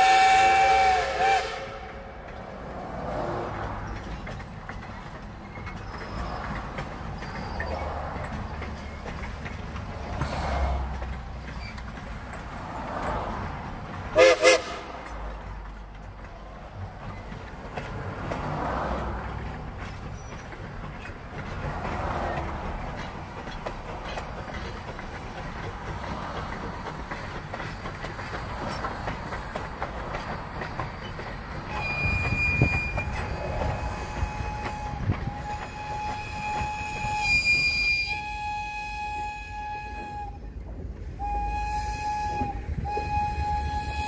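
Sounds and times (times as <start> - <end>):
steam locomotive whistle: 0.0 - 2.2, 14.2 - 15.0, 31.6 - 44.0
train coaches rolling on track: 0.0 - 44.0.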